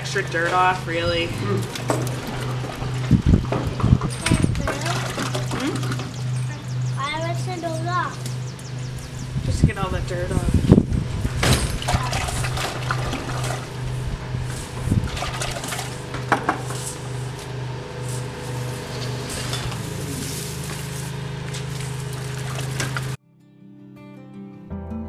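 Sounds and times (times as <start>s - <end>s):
steady low hum: 0.0s - 23.2s
water splashing in a plastic bucket: 4.6s - 6.1s, 11.6s - 13.8s, 14.7s - 16.1s, 21.6s - 23.2s.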